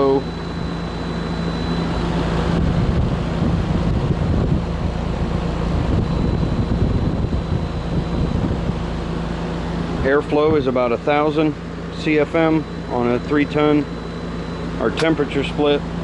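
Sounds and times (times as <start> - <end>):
air conditioner fan blowing: 0.0 - 16.0
steady low hum: 0.0 - 16.0
wind on microphone: 2.6 - 4.9, 5.7 - 8.9.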